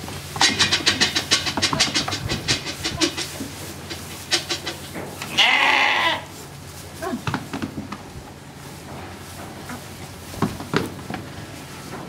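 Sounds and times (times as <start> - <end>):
small hooves clattering on wood: 0.0 - 12.0
lamb bleating: 5.2 - 6.3.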